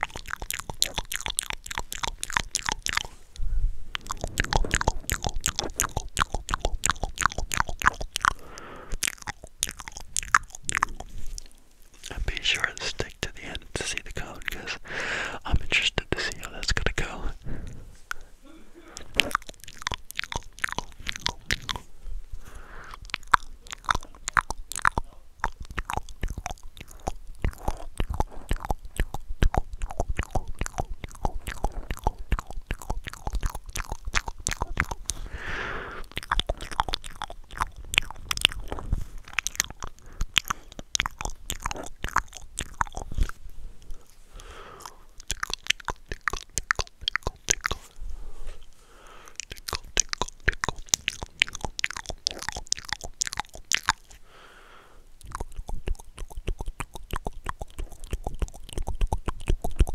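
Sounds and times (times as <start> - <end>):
tongue and lip clicks: 0.0 - 54.2, 55.2 - 59.9
breathy hisses: 8.4 - 9.0, 14.6 - 15.5, 22.3 - 23.0, 35.1 - 36.1, 43.7 - 45.2, 48.1 - 49.4, 54.2 - 55.1.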